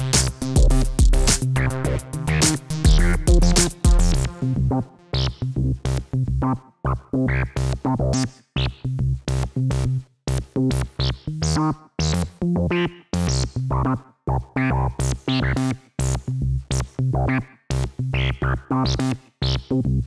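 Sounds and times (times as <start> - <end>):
electronic music with drum machine: 0.0 - 20.0.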